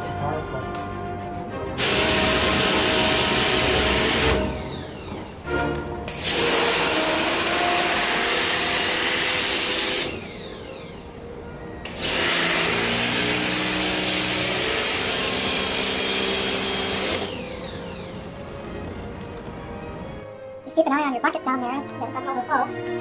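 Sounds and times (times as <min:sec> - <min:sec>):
water jet spraying: 0:01.8 - 0:05.3, 0:06.1 - 0:10.2
pump motor hum: 0:01.8 - 0:11.1, 0:11.8 - 0:19.2.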